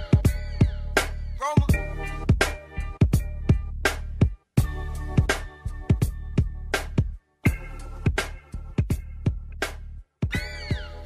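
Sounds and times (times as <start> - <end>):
instrumental hip-hop beat: 0.0 - 11.0.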